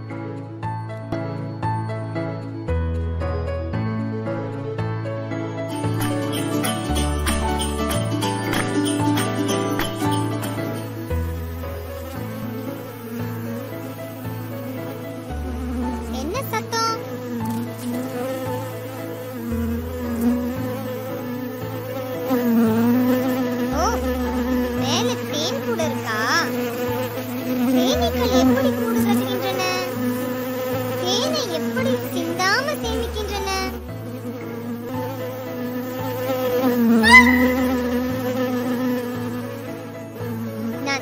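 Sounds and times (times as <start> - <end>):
cartoon bees buzzing: 5.6 - 41.0
quick rising chirps: 37.0 - 38.0.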